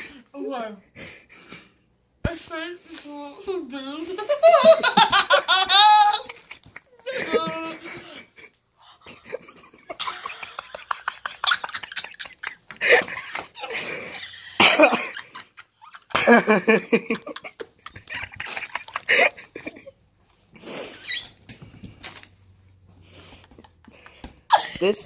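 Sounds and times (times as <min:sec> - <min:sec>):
laughter: 0:04.2 - 0:20.0, 0:23.2 - 0:25.0.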